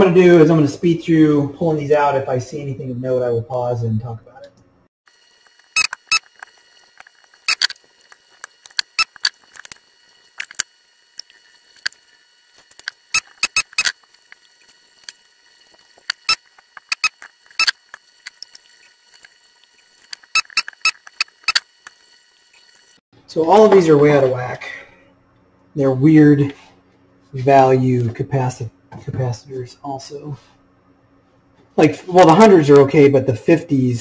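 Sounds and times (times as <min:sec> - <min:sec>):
desoldering gun working: 0:05.1 - 0:23.0.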